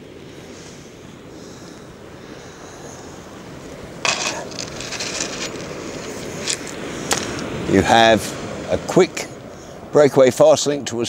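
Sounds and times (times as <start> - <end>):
surf on shingle beach: 0.0 - 11.0
wind: 0.0 - 11.0
fishing reel clattering: 4.0 - 7.4.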